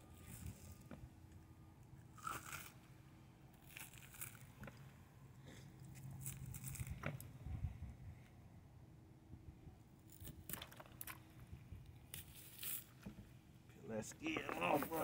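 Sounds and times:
fish skin tearing and scraping: 0:03.6 - 0:04.7.

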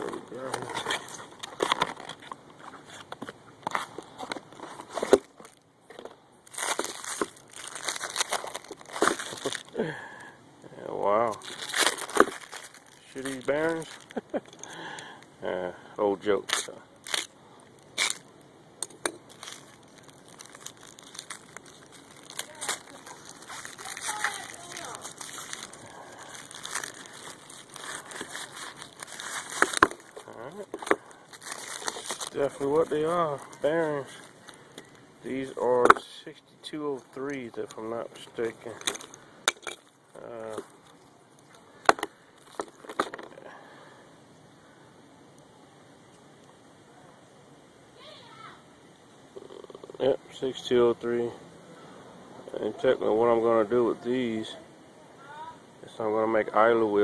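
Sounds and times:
paper crinkling: 0:00.0 - 0:10.1, 0:11.2 - 0:14.6, 0:19.0 - 0:35.5.

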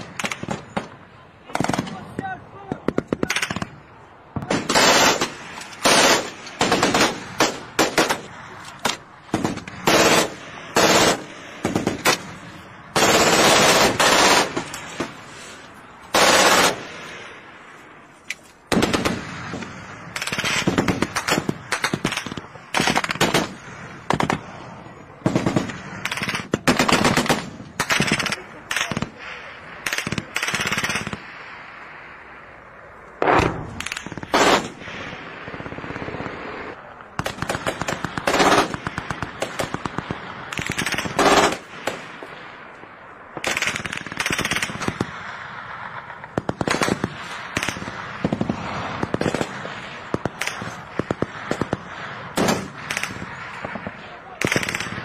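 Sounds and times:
machine-gun fire bursts: 0:04.5 - 0:12.3, 0:12.9 - 0:14.7, 0:16.1 - 0:16.9, 0:18.7 - 0:24.4, 0:25.2 - 0:29.2, 0:29.8 - 0:31.2, 0:33.3 - 0:34.8, 0:37.2 - 0:42.1, 0:43.4 - 0:45.2, 0:46.2 - 0:55.0.

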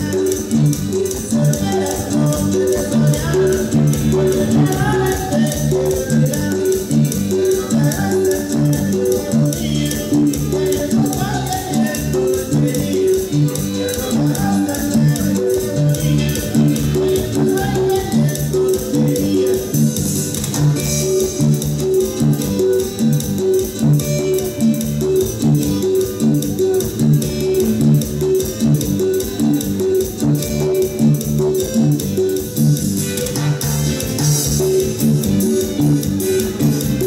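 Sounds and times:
latin dance music: 0:00.0 - 0:37.0.

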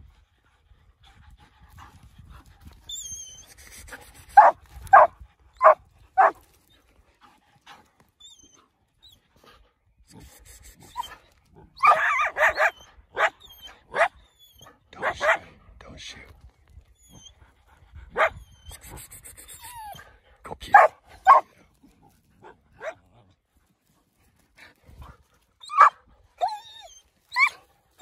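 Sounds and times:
dogs barking: 0:04.4 - 0:06.4, 0:11.8 - 0:14.1, 0:15.0 - 0:15.5, 0:20.6 - 0:21.6, 0:22.4 - 0:23.0, 0:25.7 - 0:26.0.

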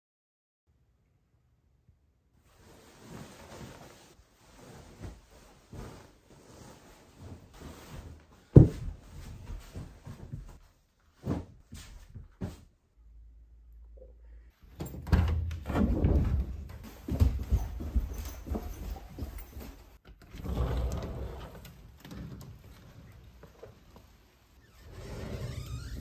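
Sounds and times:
bedding rustling and swishing: 0:02.4 - 0:12.8, 0:14.6 - 0:26.0
soft knocks: 0:08.6 - 0:09.0.

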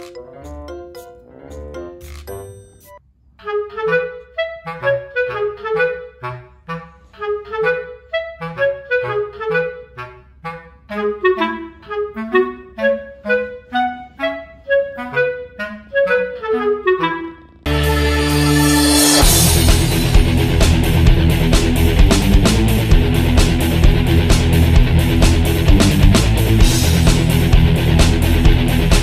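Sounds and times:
upbeat dance track: 0:17.7 - 0:29.0.

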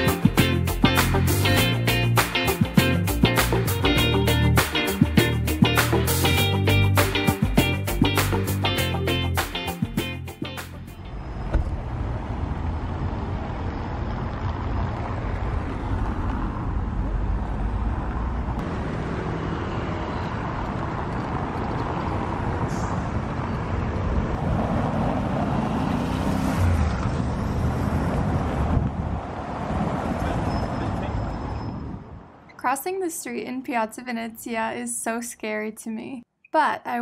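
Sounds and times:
vehicles passing over cobblestones: 0:10.4 - 0:33.4.

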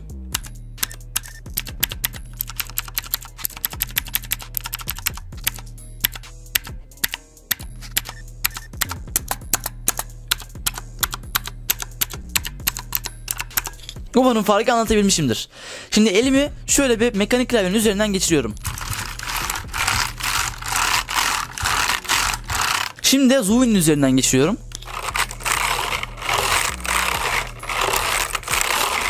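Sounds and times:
mechanical keyboard typing: 0:00.4 - 0:13.7, 0:18.6 - 0:23.0, 0:24.8 - 0:29.0.

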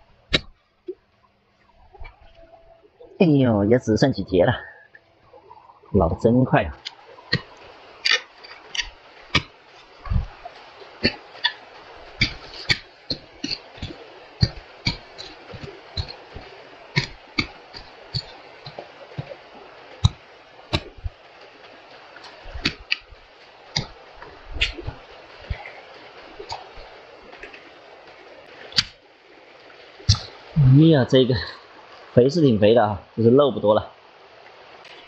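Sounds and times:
hoe chopping into dry soil: 0:07.3 - 0:09.5, 0:12.2 - 0:19.4.

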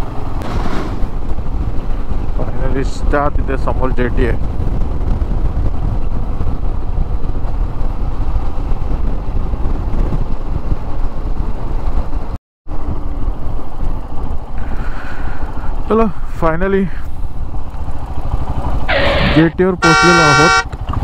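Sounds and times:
road noise: 0:00.0 - 0:21.0
wind buffeting microphone: 0:00.1 - 0:15.9
motorcycle engine: 0:17.1 - 0:21.0.

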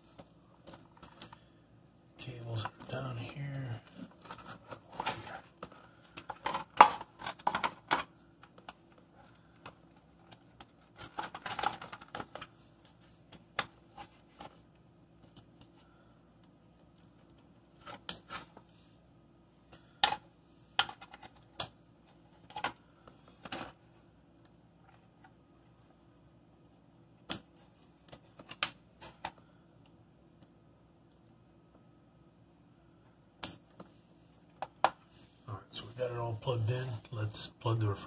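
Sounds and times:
wires rustling: 0:02.2 - 0:26.4.

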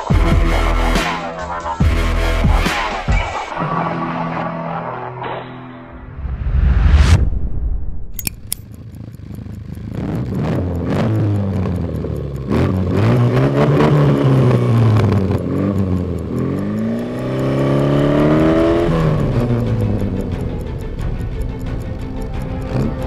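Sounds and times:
car engine revving: 0:08.4 - 0:23.0.

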